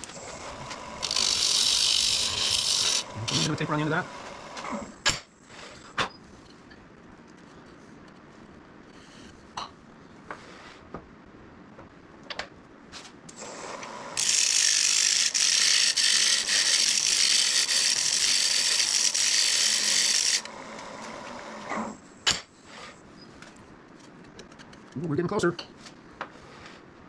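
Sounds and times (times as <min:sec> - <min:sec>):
lathe tool cutting wood: 0:00.1 - 0:04.4, 0:13.4 - 0:21.6.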